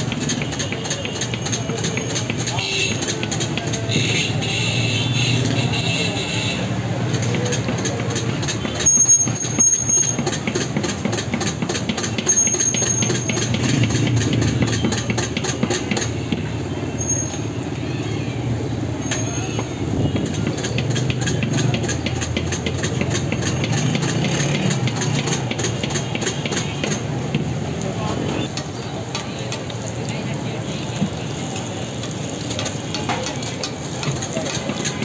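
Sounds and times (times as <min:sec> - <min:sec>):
voices: 0:00.0 - 0:10.9, 0:11.7 - 0:35.0
street traffic rumble: 0:00.0 - 0:35.0
short high squeals: 0:08.7 - 0:10.2, 0:16.9 - 0:19.7
food sizzling in oil: 0:28.5 - 0:35.0.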